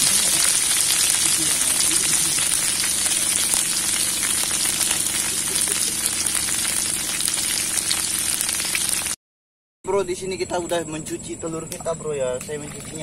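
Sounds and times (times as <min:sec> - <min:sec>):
egg sizzling in hot oil: 0:00.0 - 0:09.2.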